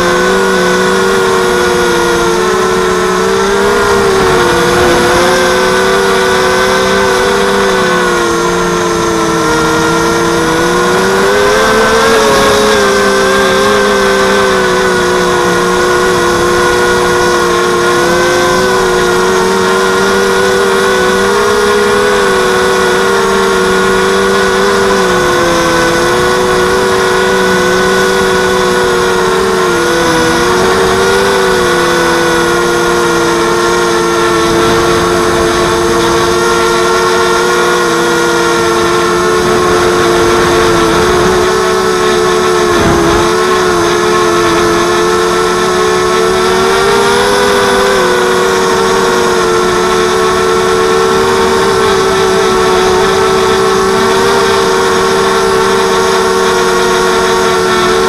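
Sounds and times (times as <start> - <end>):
quadcopter motors humming: 0.0 - 58.0.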